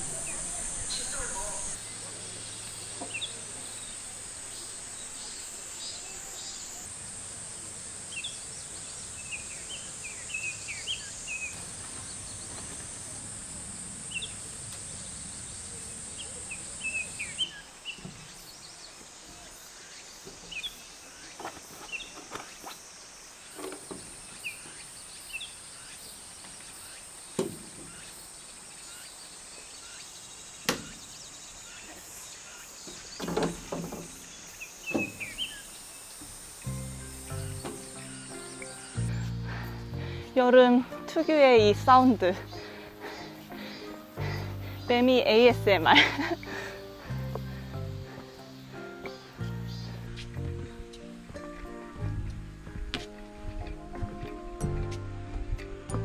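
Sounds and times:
cicadas buzzing: 0.0 - 56.0
bird chirps: 28.8 - 39.8.

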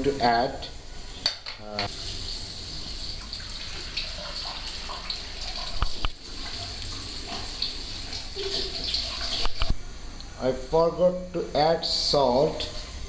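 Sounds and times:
soup boiling and popping: 3.9 - 6.2.

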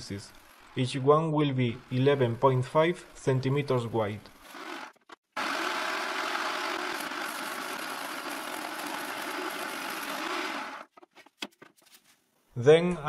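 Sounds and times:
jigsaw cutting plywood: 4.4 - 10.9.

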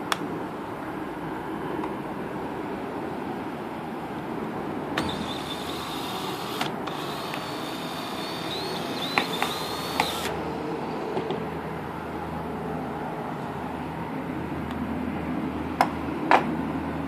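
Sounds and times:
cordless drill motor whining: 5.0 - 10.4
sharp clicks: 8.2 - 10.4.

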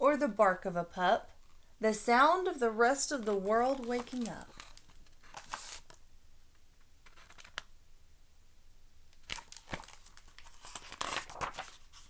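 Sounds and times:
paper rustling: 3.0 - 6.0, 7.0 - 7.6, 9.2 - 12.0
book handling noises: 3.1 - 6.0, 7.0 - 7.7, 9.2 - 12.0.

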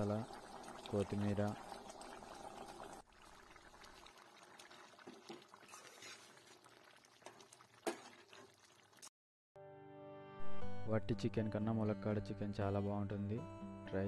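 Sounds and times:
curry bubbling and stirring: 0.0 - 9.1.

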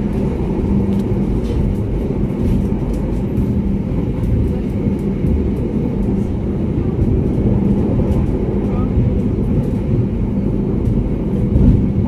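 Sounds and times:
low drone: 0.0 - 12.0
train wheels rumbling on rails: 0.0 - 12.0.

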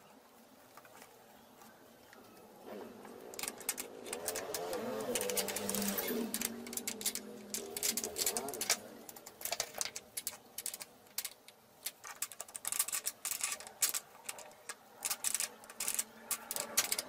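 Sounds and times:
spanner clicking on metal: 3.3 - 17.0.

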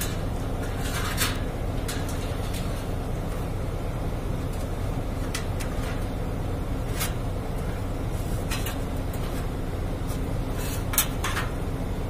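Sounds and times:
rustles and clicks handling metal box: 0.0 - 3.0, 10.1 - 11.6
steady low hum: 0.0 - 12.0.

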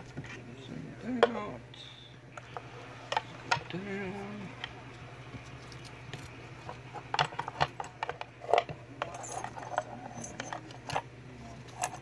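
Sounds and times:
faint low hum: 0.0 - 12.0
keys and lock clinking: 9.0 - 12.0.

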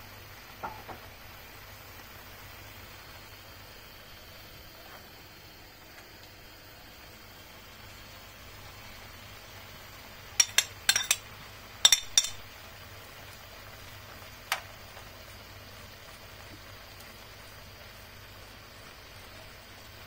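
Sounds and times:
faint hiss: 0.0 - 20.0
utensil clinking against pan: 10.4 - 12.4.

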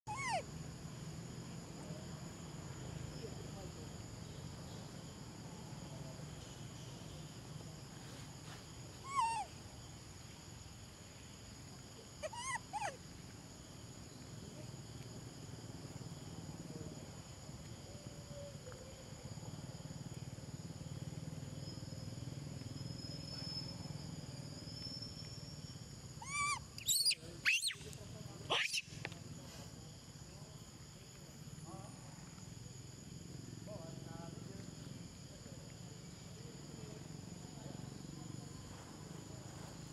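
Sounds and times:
faint outdoor background: 0.0 - 39.9
young macaques squealing: 0.1 - 0.4, 9.0 - 9.5, 12.2 - 13.0, 26.2 - 27.8, 28.5 - 28.9.

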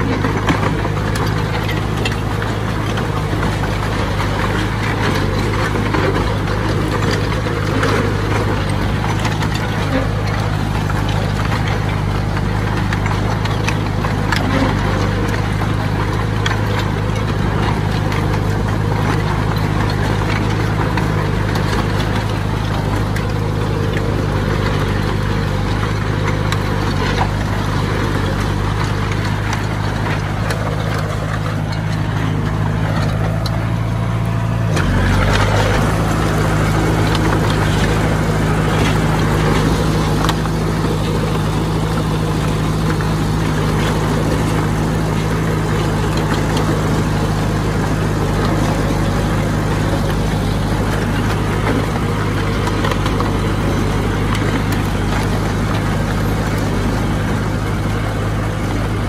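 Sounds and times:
heavy machine engine running: 0.0 - 59.0.

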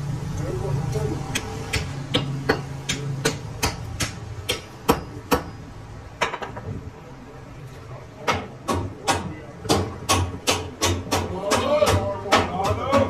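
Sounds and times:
hammer striking metal: 1.3 - 5.6, 8.3 - 13.0.

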